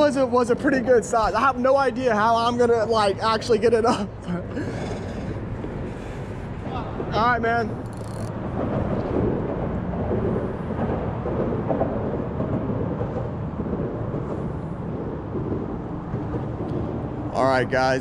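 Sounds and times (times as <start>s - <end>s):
low rumble of traffic on bridge: 0.0s - 18.0s.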